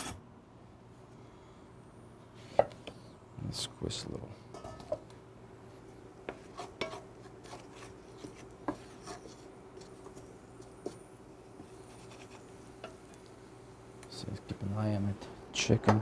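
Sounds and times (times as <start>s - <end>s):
faint hum: 0.0s - 16.0s
wooden spoon scraping skillet: 6.3s - 13.2s.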